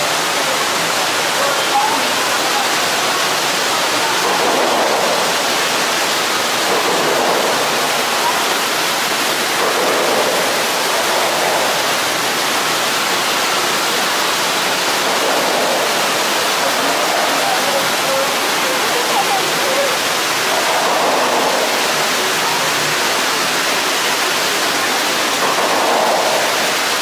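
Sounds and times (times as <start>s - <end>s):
steady rushing noise: 0.0s - 27.0s.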